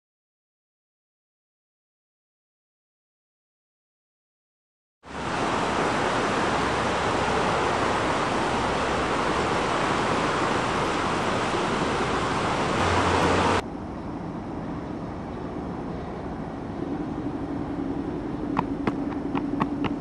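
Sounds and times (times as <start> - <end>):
steady rushing noise: 5.1 - 20.0
low hum: 5.3 - 20.0.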